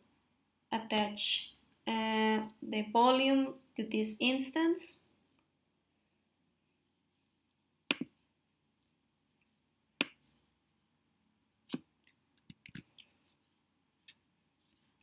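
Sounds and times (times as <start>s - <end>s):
computer mouse clicks: 12.4s - 13.1s.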